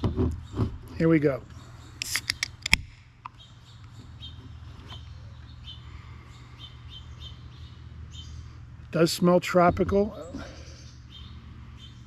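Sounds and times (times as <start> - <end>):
birds chirping faintly: 0.0 - 12.0
can pull-tab clicks: 2.0 - 2.8.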